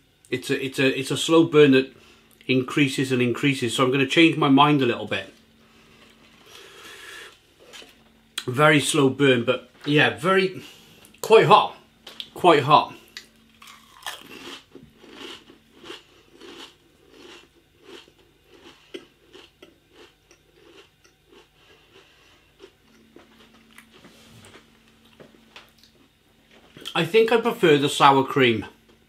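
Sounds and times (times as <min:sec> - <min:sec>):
person chewing crisps: 0:13.2 - 0:26.2.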